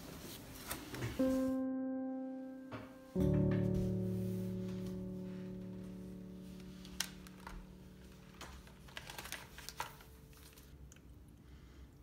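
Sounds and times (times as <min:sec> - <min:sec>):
held music chord: 0:01.2 - 0:09.5.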